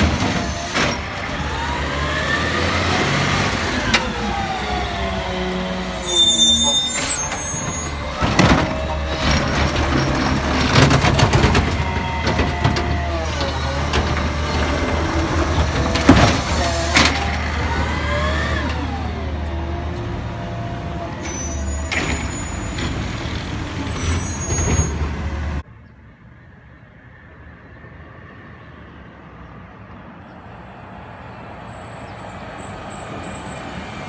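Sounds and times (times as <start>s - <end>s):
cart banging against hopper: 7.8s - 17.5s.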